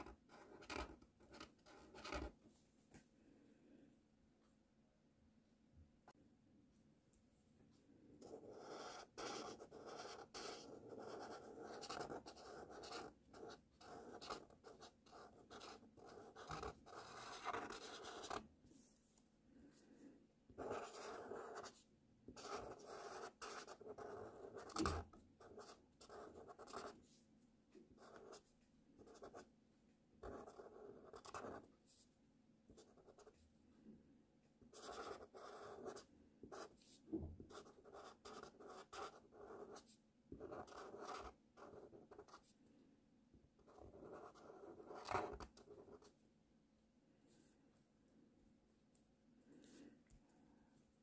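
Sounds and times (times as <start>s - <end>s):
marker scratching on paper: 0.0s - 2.4s, 8.2s - 18.4s, 20.6s - 27.2s, 27.9s - 28.4s, 29.0s - 29.4s, 30.2s - 32.0s, 34.7s - 42.5s, 43.6s - 46.1s.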